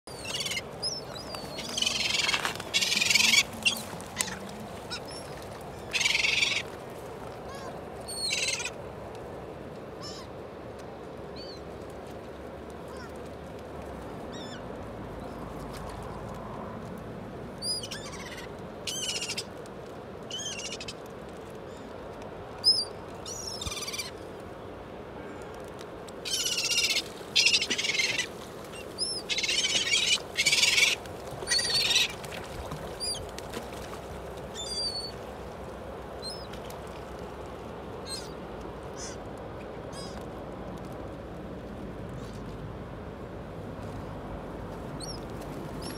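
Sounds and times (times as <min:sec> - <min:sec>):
gulls calling: 0:00.1 - 0:06.7, 0:26.2 - 0:33.4, 0:34.5 - 0:35.2
steady background hiss: 0:00.1 - 0:45.9.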